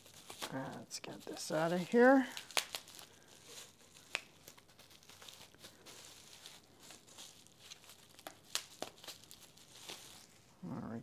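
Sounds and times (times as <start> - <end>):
bubble wrap crackles: 0.0 - 11.0
bubble wrap crinkling: 0.0 - 11.0.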